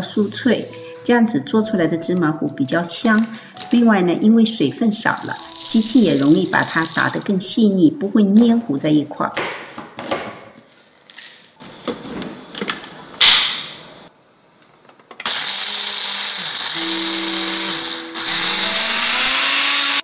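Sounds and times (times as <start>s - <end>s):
blender grinding seeds: 5.2s - 7.2s, 15.2s - 20.0s.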